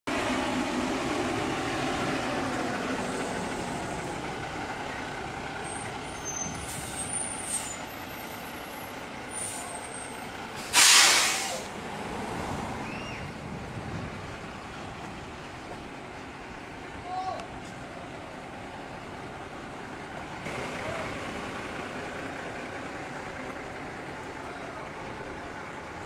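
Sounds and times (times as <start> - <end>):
heavy vehicle engine running: 0.1 - 26.0
air brakes hissing: 5.7 - 8.5, 9.3 - 11.8.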